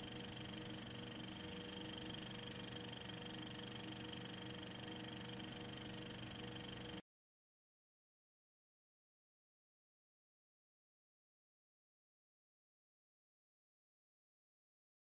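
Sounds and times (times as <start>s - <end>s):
constant hum tones: 0.0s - 7.0s.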